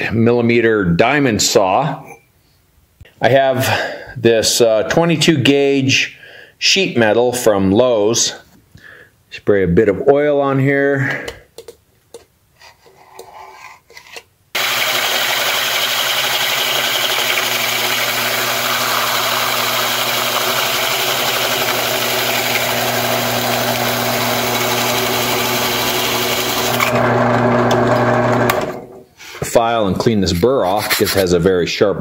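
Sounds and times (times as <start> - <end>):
hole saw grinding metal: 14.6 - 27.1
drill press motor hum: 14.6 - 28.9.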